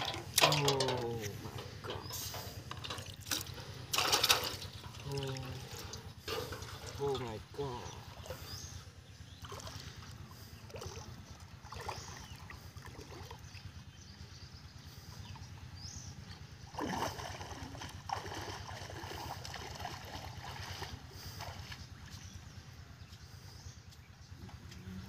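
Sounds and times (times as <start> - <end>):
steady low rumble: 0.0 - 16.8
water splashing around legs: 16.7 - 22.3.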